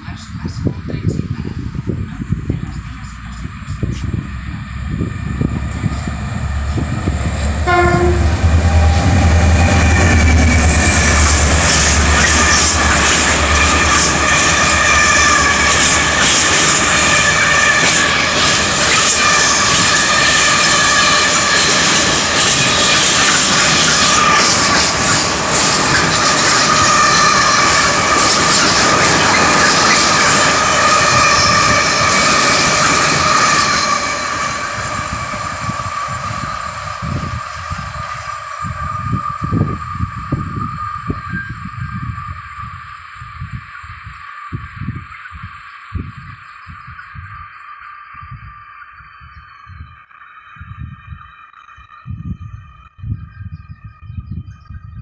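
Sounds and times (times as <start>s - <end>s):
diesel locomotive engine rumble: 0.0s - 51.3s
train wheel clatter: 1.7s - 42.0s
high-pitched wheel squeal: 3.7s - 42.6s.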